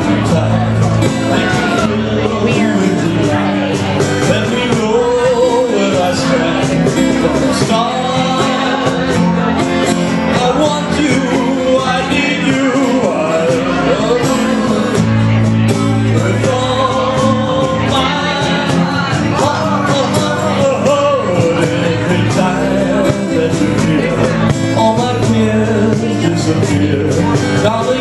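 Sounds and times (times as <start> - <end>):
electric bass guitar: 0.0 - 28.0
guitar: 0.0 - 28.0
man singing: 0.0 - 28.0.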